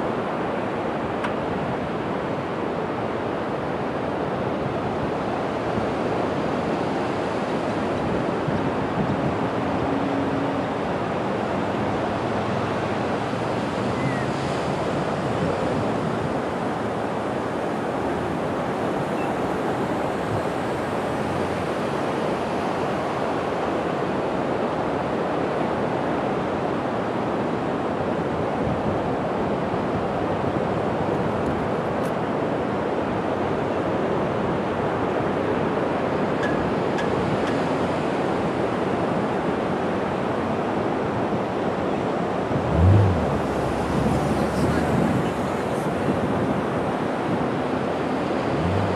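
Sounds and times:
ocean surf breaking: 35.7 - 48.9.

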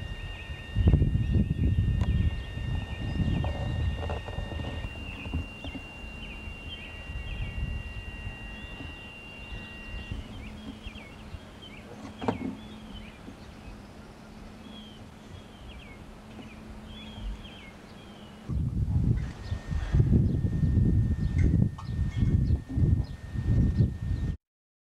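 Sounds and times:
bird chirping: 0.0 - 24.4
wind rumbling on microphone: 0.0 - 24.4.

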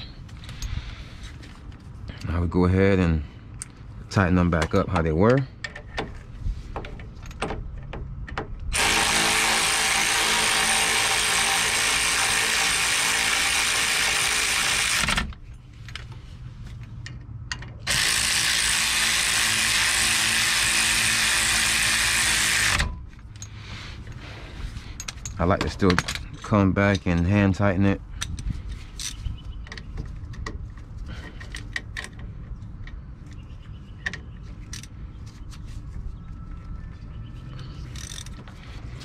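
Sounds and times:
electric ratchet running: 8.7 - 15.3, 17.9 - 22.9.

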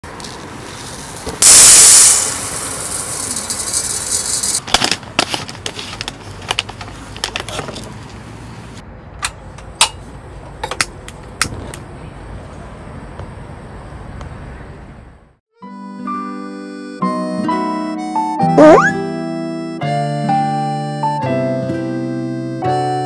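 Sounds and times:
rice pouring into metal pot: 0.7 - 4.6.

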